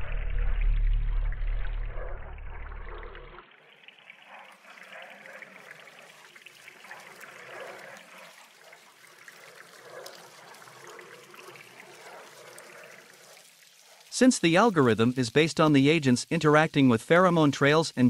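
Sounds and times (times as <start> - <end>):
deep low rumble: 0.0 - 3.4
water trickling and bubbling: 0.0 - 18.0.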